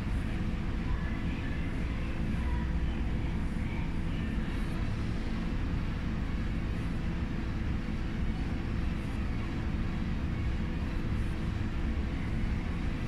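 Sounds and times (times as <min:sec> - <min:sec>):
low rumble of room noise: 0:00.0 - 0:13.0.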